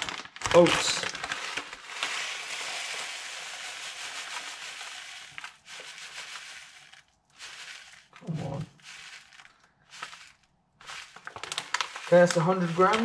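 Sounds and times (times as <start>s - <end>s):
oats pouring into plastic tub: 0.0s - 13.0s
plastic bag crinkling: 0.0s - 13.0s.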